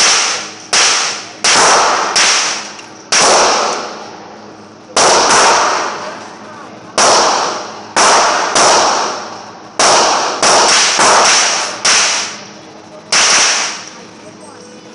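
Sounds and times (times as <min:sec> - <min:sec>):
gunshots echoing indoors: 0:00.0 - 0:04.0, 0:05.0 - 0:06.0, 0:07.0 - 0:12.3.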